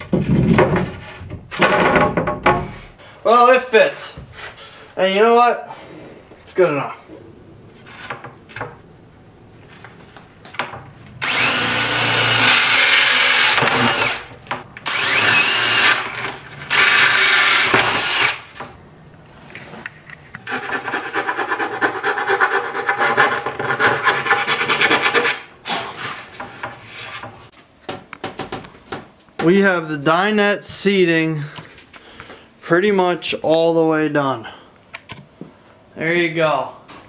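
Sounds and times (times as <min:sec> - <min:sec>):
power drill cutting plywood: 0:11.2 - 0:18.5.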